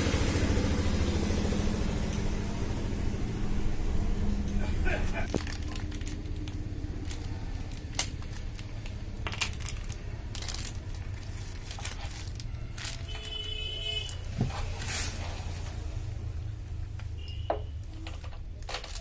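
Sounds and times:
steady low hum: 0.0s - 11.7s.

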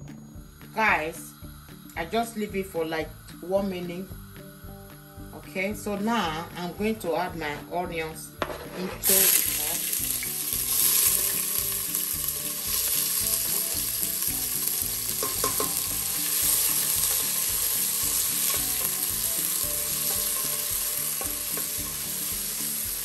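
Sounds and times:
onions sizzling in oil: 0.6s - 7.2s, 8.3s - 23.0s.

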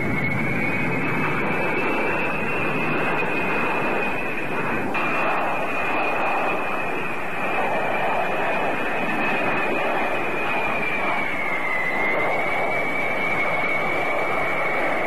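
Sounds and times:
high steady engine whine: 0.0s - 15.0s
jet engines rushing: 0.0s - 15.0s.

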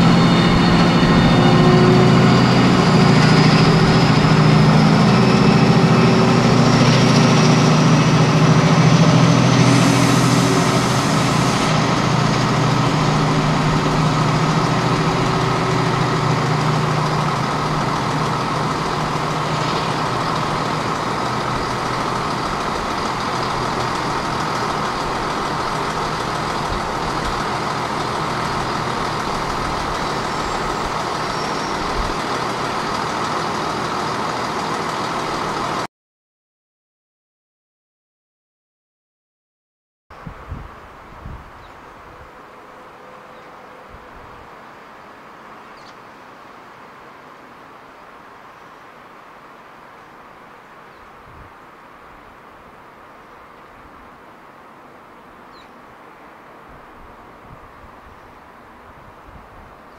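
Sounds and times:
thin rising whine: 0.0s - 35.8s
diesel locomotive engine: 0.0s - 35.9s.

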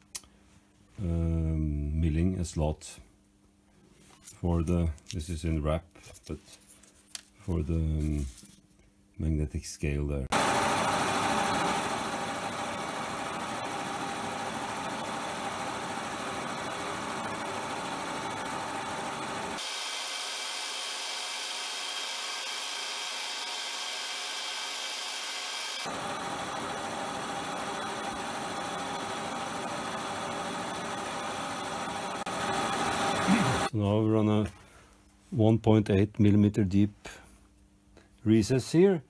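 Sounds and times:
milling machine cutting metal: 10.3s - 33.7s.

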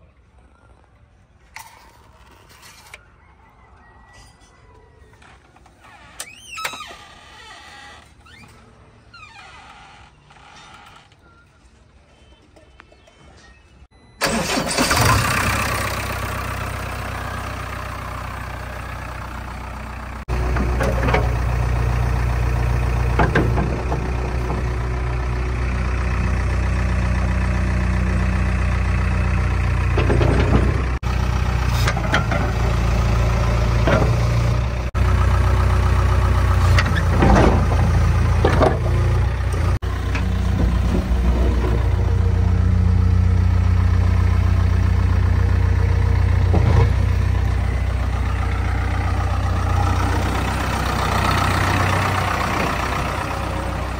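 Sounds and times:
diesel engine idling: 14.2s - 53.9s.

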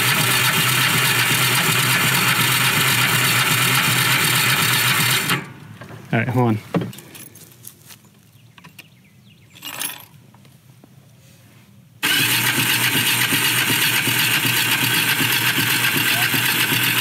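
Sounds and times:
engine starting and running: 0.0s - 6.1s, 12.0s - 17.0s.

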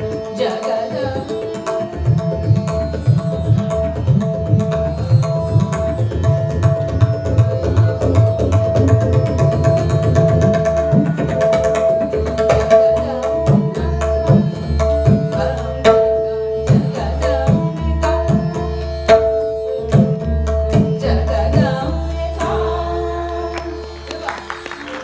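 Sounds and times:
harmonium: 0.0s - 25.0s
tabla drum strokes: 0.0s - 25.0s
tanpura drone: 0.0s - 25.0s
woman singing: 0.1s - 2.0s, 12.6s - 18.7s, 20.8s - 24.8s.

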